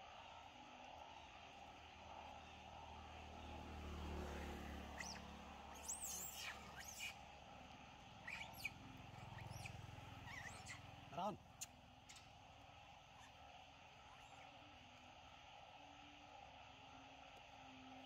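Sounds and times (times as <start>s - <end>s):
traffic rumble: 3.1s - 11.6s
short high chirping calls: 5.0s - 7.1s, 8.2s - 10.8s.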